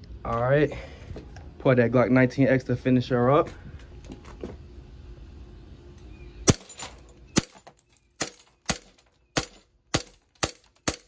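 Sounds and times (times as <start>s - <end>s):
bb pistol shots: 8.2s - 11.0s.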